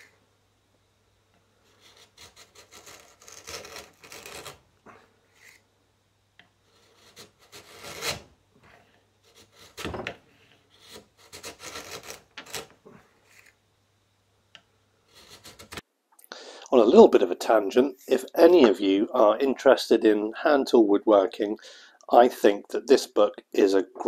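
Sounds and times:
chisel scraping wood: 1.6 - 4.6, 5.3 - 5.6, 6.4 - 13.6, 15.1 - 15.8.

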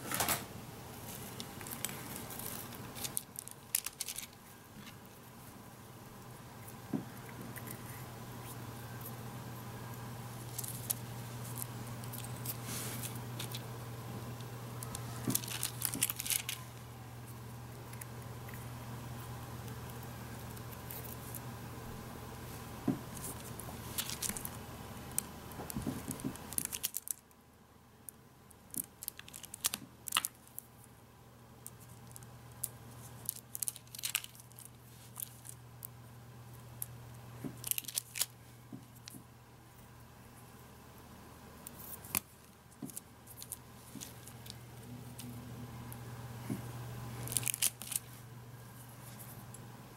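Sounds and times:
low electrical hum: 0.0 - 49.9
plastic film crinkling: 1.1 - 5.2, 14.8 - 16.8, 23.1 - 27.3, 28.7 - 30.7, 31.7 - 35.6, 37.5 - 39.2, 41.8 - 44.6, 47.2 - 48.2.

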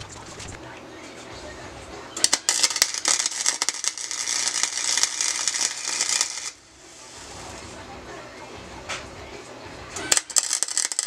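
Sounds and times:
welding arc crackling: 2.2 - 6.7, 10.0 - 11.0.

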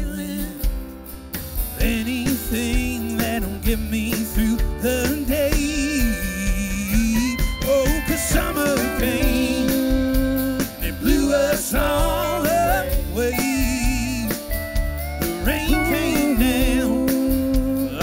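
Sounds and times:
drum kit: 0.0 - 18.0
electric bass: 0.0 - 18.0
sliding lead guitar line: 0.0 - 18.0.

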